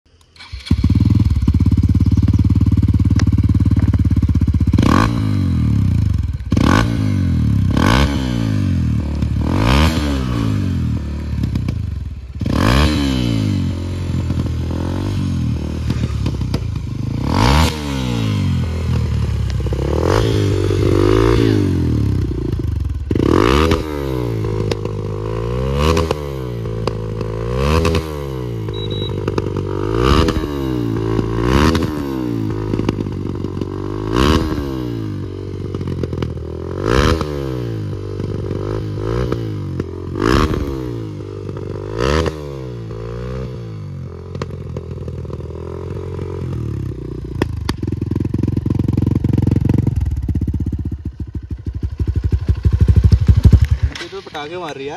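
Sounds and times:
motorcycle engine revving: 0.1s - 54.9s
exhaust backfire pops and bangs: 15.8s - 19.8s, 22.1s - 25.1s, 47.3s - 49.2s, 52.2s - 54.9s.

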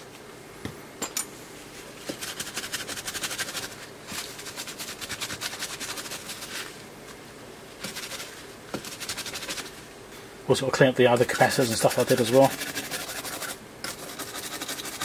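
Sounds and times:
cloth scrubbing circuit board: 7.8s - 9.8s, 11.0s - 15.0s.

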